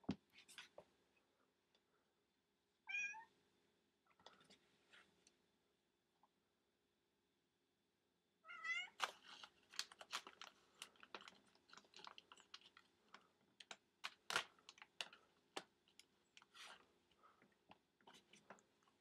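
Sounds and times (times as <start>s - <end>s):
cat meowing: 2.9s - 3.3s, 8.4s - 9.0s
plastic bag crinkling: 8.9s - 16.9s.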